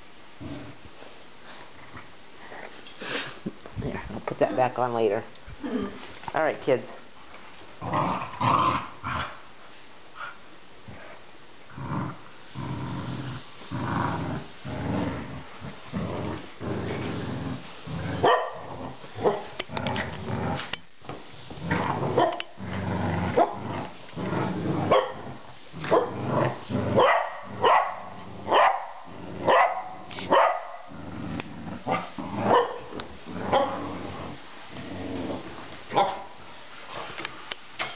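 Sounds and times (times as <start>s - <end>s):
dogs growling: 7.8s - 9.4s, 10.9s - 20.8s, 21.5s - 36.4s
dogs barking: 18.2s - 18.6s, 27.0s - 30.9s, 32.5s - 32.9s.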